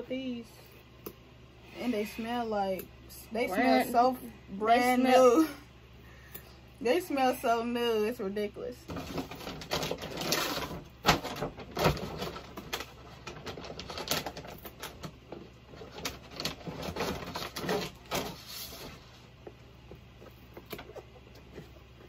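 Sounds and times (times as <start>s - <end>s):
crinkly tearing and rustling: 8.9s - 19.2s.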